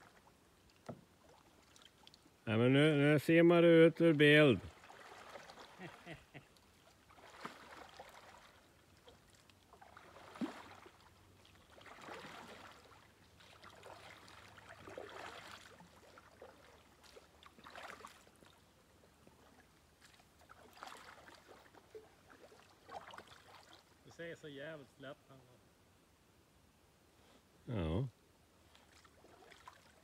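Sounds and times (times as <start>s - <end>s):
paddle splashing in water: 0.0s - 2.4s, 4.6s - 24.0s, 28.6s - 30.0s.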